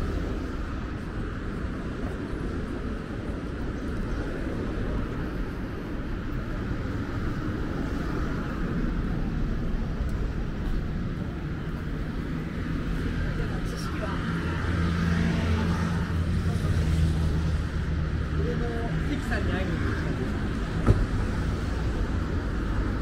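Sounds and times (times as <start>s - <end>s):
road traffic noise: 0.0s - 23.0s.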